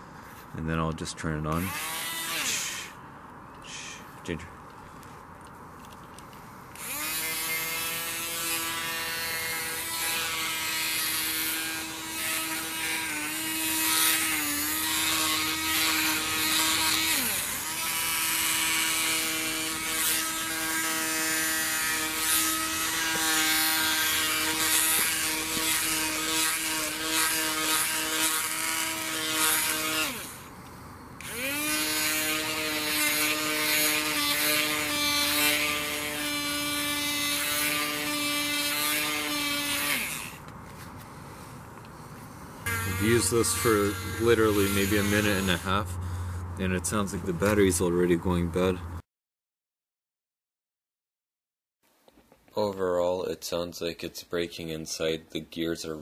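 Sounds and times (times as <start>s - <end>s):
grooming brush motor whining: 1.5s - 3.0s, 6.7s - 41.1s, 42.6s - 48.7s.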